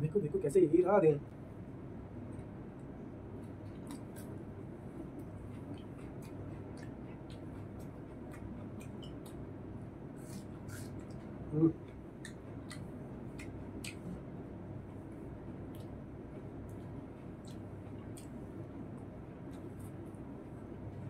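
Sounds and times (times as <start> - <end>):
wet mouth clicks and smacks: 3.5 - 4.4, 5.2 - 9.5, 12.2 - 14.2, 17.4 - 18.4.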